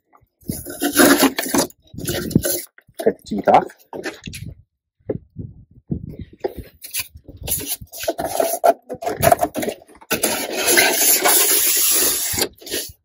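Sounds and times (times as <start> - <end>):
rasping strokes on polystyrene: 0.5 - 2.7, 6.8 - 13.0.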